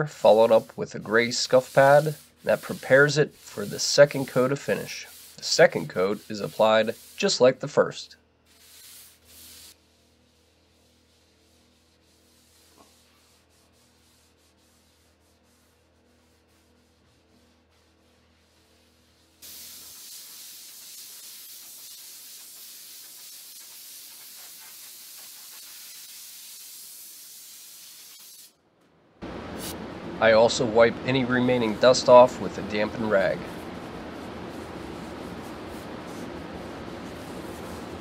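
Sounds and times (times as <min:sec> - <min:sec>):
compressed-air blow gun hissing: 0:19.4 - 0:28.5.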